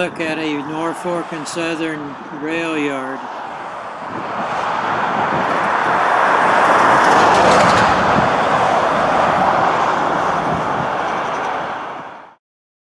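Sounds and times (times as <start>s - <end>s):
diesel locomotive engine: 3.8s - 12.1s.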